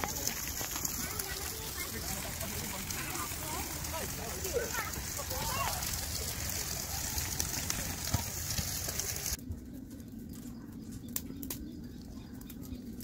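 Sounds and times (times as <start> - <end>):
wagon wheels rolling on wet road: 0.0 - 9.4
wood fire crackling: 0.0 - 13.0.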